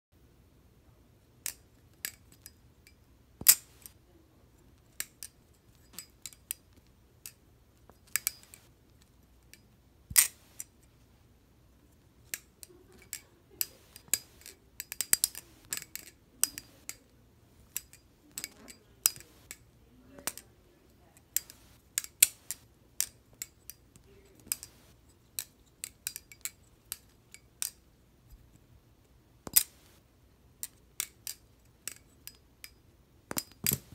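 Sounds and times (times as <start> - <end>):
butterfly knife clacking: 1.4 - 4.0, 4.9 - 7.4, 8.0 - 8.7, 9.5 - 10.7, 12.2 - 17.1, 17.7 - 19.6, 20.2 - 20.5, 21.2 - 27.8, 29.4 - 30.0, 30.6 - 33.9.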